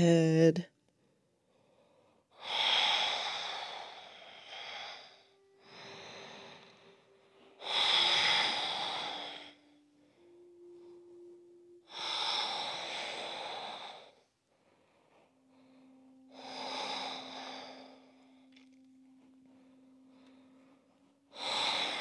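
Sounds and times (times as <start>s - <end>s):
deep human breathing: 1.0s - 22.0s.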